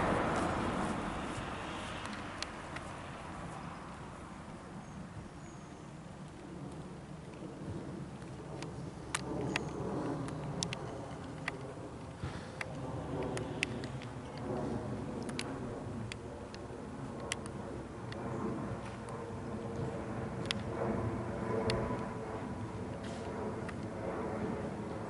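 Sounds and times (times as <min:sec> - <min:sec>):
jet airliner rumble overhead: 0:00.0 - 0:25.0
sharp ticks: 0:08.2 - 0:11.8, 0:15.2 - 0:18.2.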